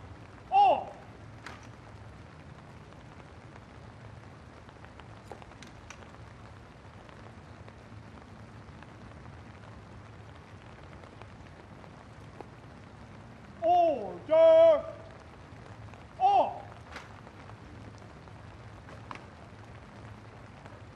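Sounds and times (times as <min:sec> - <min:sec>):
steady rain falling: 0:00.0 - 0:20.9.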